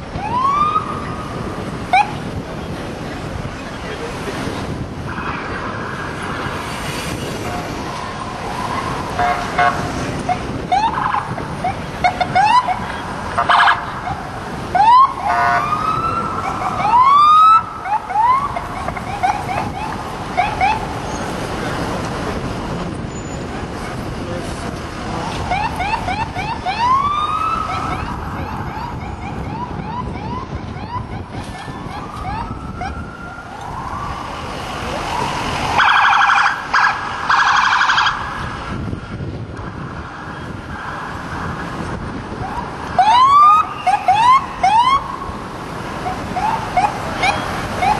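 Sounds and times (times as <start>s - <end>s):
police sirens wailing: 0.0s - 47.9s
car horn blasts: 9.2s - 9.9s.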